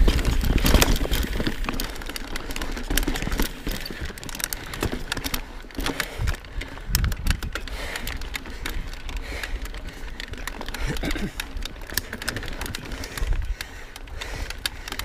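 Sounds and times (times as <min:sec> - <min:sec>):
bike clicks and rattles: 0:00.0 - 0:15.0
tyres crunching over dirt and rock: 0:00.0 - 0:15.0
wind rumble on microphone: 0:06.2 - 0:07.6.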